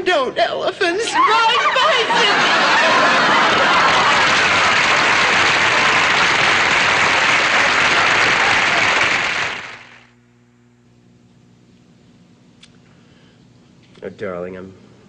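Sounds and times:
audience applause: 1.7s - 10.1s.

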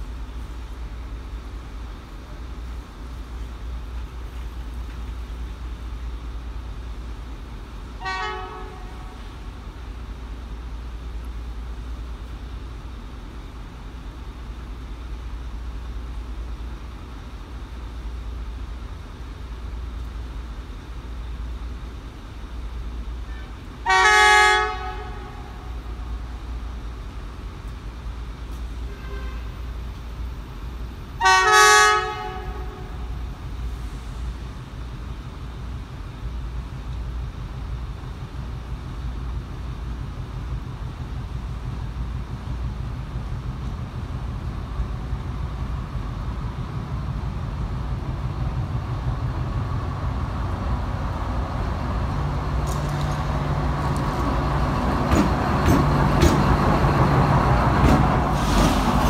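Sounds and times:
train horn blasts: 8.0s - 9.3s, 23.8s - 26.1s, 28.8s - 29.7s, 31.2s - 33.2s.

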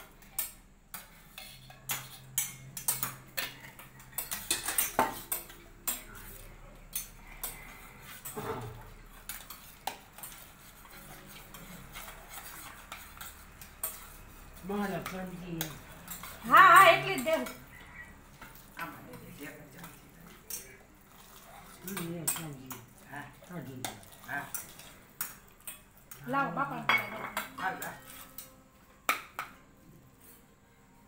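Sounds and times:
spoon scraping a steel pot: 0.2s - 23.1s, 26.9s - 28.6s.

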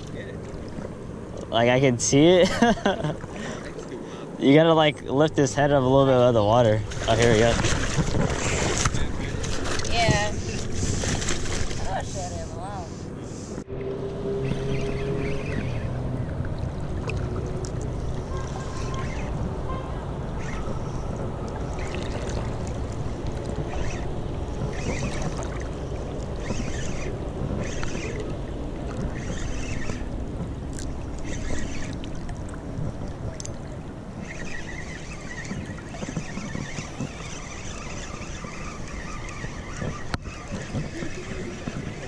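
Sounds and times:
river water lapping and sloshing: 0.0s - 42.0s.

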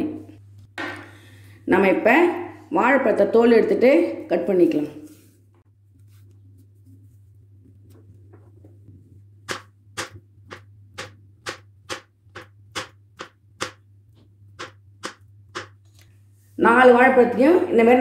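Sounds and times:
steady low hum: 5.2s - 18.0s
knife tapping cutting board: 9.5s - 13.8s.

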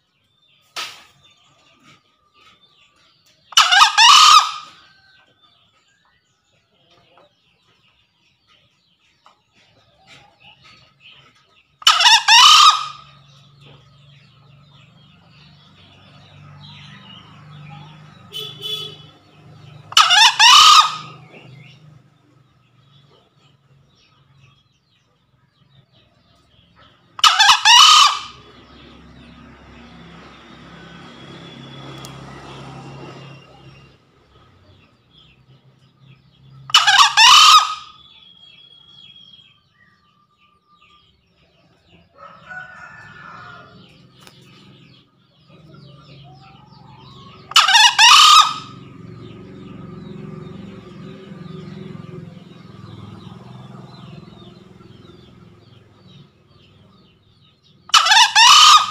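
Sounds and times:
junglefowl crowing: 3.5s - 5.0s, 11.8s - 13.5s, 16.6s - 21.8s, 27.2s - 29.0s, 36.7s - 38.5s, 42.1s - 44.4s, 45.4s - 52.1s, 57.9s - 58.9s.

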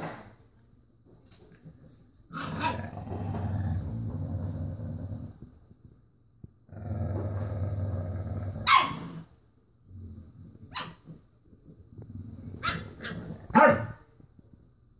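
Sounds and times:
dog growling: 2.3s - 5.5s, 6.7s - 10.7s, 11.9s - 13.6s
dog barking: 8.6s - 9.1s, 13.5s - 14.0s.

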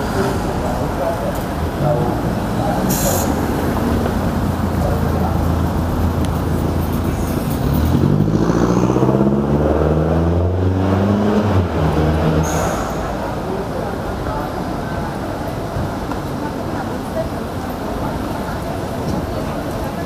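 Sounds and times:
cars passing close by: 0.0s - 14.4s.

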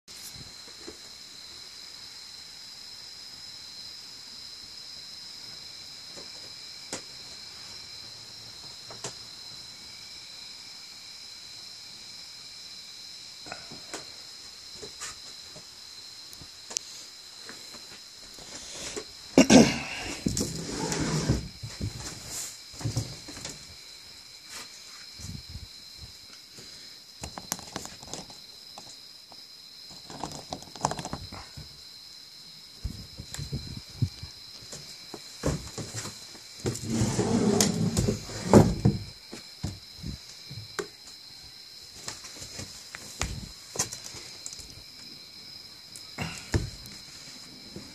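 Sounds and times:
insects trilling: 0.1s - 47.9s
handling noise rustling and scraping: 20.2s - 23.6s, 35.4s - 39.1s
handling rustling and knocks: 20.2s - 23.7s, 27.2s - 28.9s, 29.9s - 31.7s, 42.0s - 44.8s.

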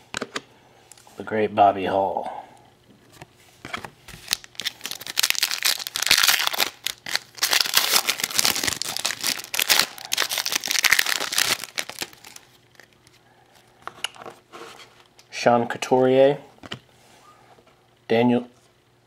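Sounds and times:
foil wrapper crinkling: 4.2s - 13.2s.

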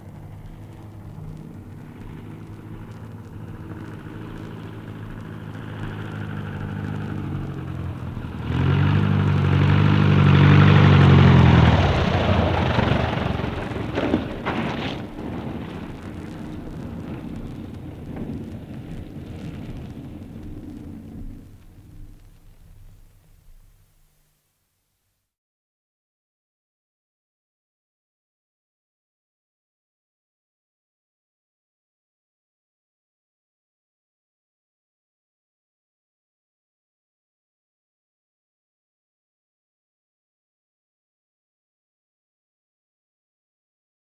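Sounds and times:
propeller aircraft engine: 0.0s - 24.0s.

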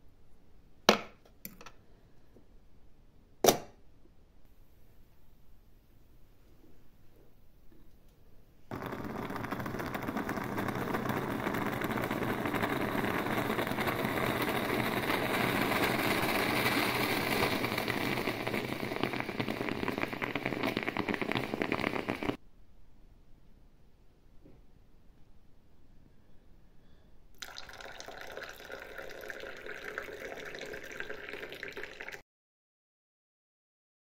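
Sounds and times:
moka pot sputtering and gurgling: 8.7s - 22.4s, 27.4s - 32.2s.

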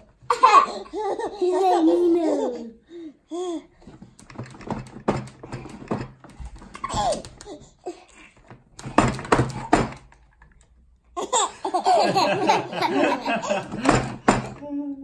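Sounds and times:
plastic knocks and clatter: 3.8s - 7.6s, 8.4s - 10.7s, 13.3s - 14.6s.

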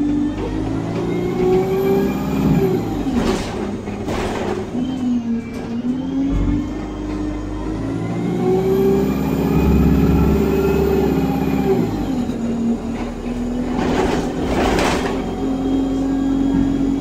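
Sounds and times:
bus engine pulling away: 0.0s - 17.0s.

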